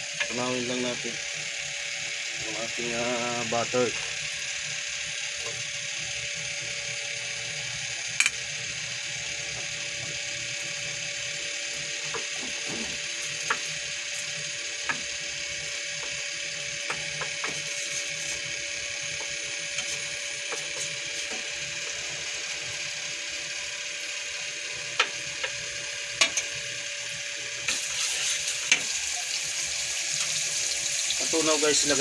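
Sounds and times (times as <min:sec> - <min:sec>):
butter sizzling in a frying pan: 0:25.1 - 0:32.0.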